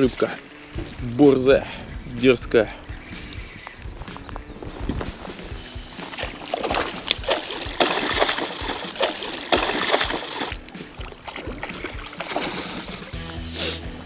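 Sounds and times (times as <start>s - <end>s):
fish thrashing and splashing: 5.9s - 13.3s.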